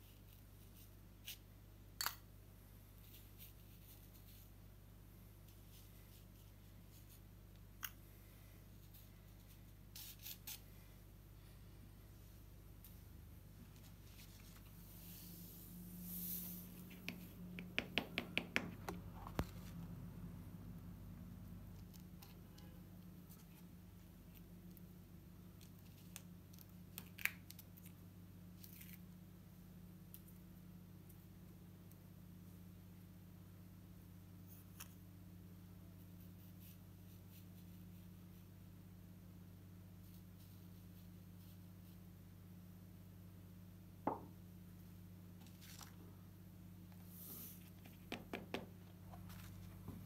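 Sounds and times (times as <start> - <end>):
low steady hum: 0.0 - 50.0
sand sliding hiss: 15.0 - 16.8.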